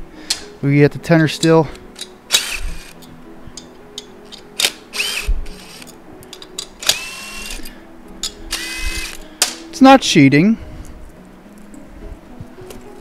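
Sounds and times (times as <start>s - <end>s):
impact driver motor whine: 4.9s - 5.8s, 6.8s - 7.7s, 8.5s - 9.2s.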